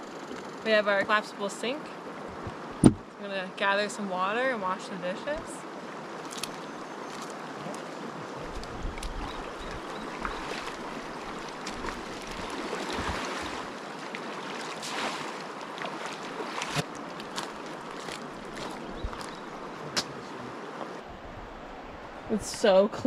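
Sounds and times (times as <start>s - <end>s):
wind bumps on microphone: 2.3s - 3.0s, 8.4s - 10.4s
river rushing: 4.0s - 22.4s.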